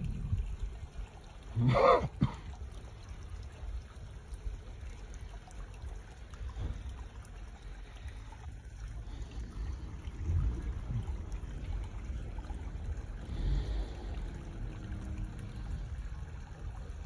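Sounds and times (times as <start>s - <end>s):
stream trickling over rocks: 0.0s - 17.0s
low rumble: 9.1s - 16.8s.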